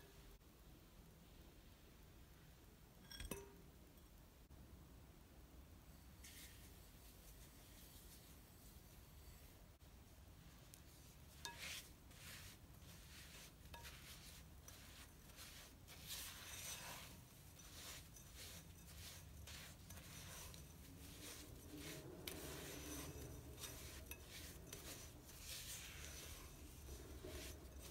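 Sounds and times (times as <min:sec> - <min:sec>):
spatula stirring and scraping: 0:06.2 - 0:09.6, 0:10.4 - 0:27.9.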